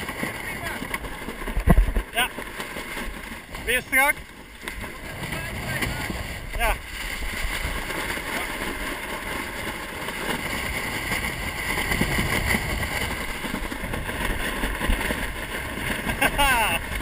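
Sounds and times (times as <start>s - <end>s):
water rushing along hull: 0.0s - 17.0s
wind buffeting microphone: 0.0s - 17.0s.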